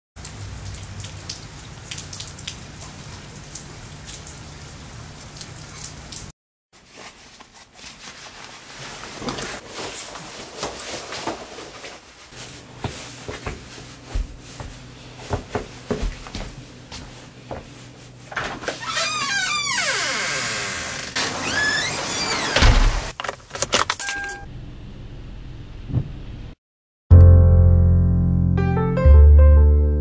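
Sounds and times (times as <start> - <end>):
rain on wet pavement: 0.2 - 6.3
clothes rustling: 6.8 - 18.8.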